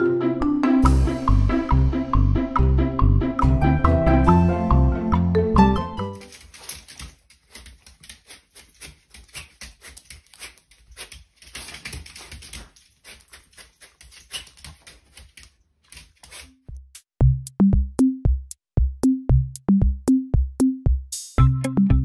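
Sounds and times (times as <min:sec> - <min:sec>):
dog claws clicking on tile floor: 0:06.2 - 0:16.6.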